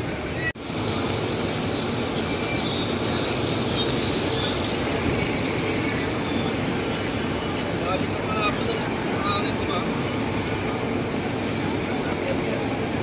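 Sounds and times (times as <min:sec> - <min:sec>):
rain falling on a wet street: 0:00.0 - 0:13.0.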